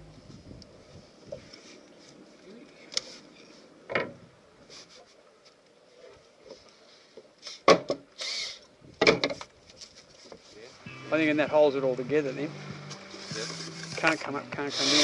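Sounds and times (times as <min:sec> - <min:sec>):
scraping rustle: 0:13.0 - 0:15.0.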